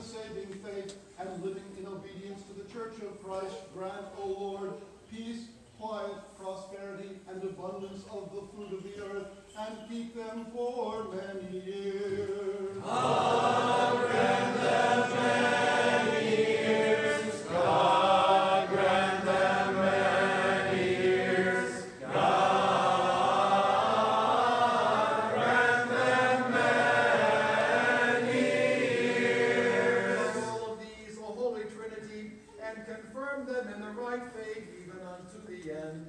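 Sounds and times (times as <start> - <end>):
choir singing chant: 12.1 - 30.8.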